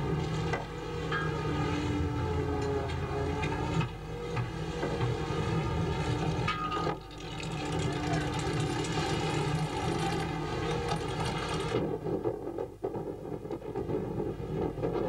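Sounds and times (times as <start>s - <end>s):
wind: 0.0s - 15.0s
boat engine running: 4.6s - 12.0s.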